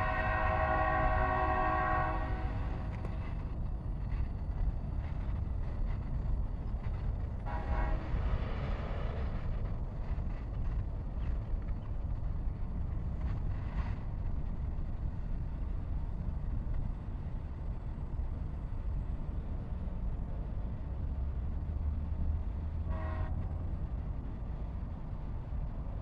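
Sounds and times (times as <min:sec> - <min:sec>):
train horn toot: 0:00.0 - 0:02.9, 0:07.4 - 0:08.4, 0:22.8 - 0:23.6
freight train rumbling: 0:00.0 - 0:26.0.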